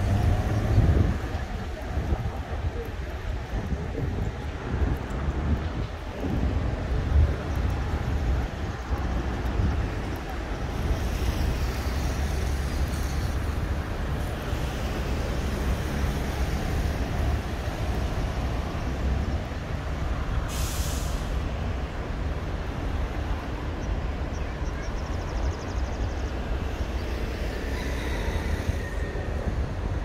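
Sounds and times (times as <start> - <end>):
rumble of passing vehicles: 0.0 - 30.0
sharp hiss: 20.4 - 21.6.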